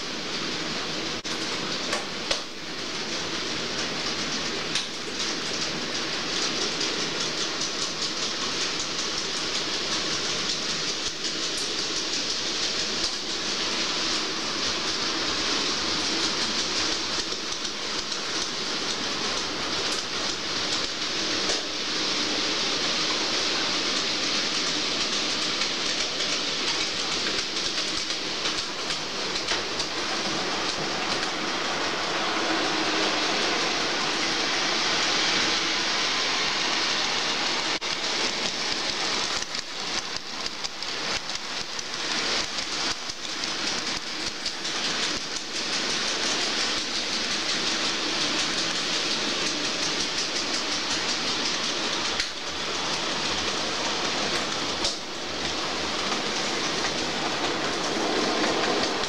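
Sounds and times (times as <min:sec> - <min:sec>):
model train motor whirring: 0:01.3 - 0:59.0
wheels clicking over rail joints: 0:37.9 - 0:59.0.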